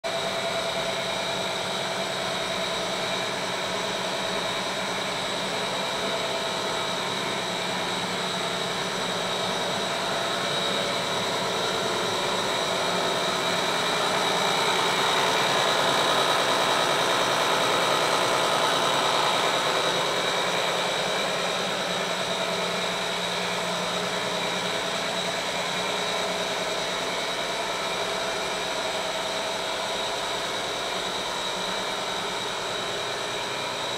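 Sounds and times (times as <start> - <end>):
high steady whine: 0.1 - 33.9.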